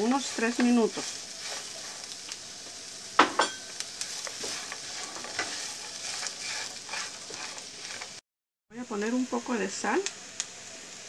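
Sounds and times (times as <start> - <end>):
spatula scraping skillet: 0.0 - 8.2
potatoes and onion sizzling: 0.0 - 11.0.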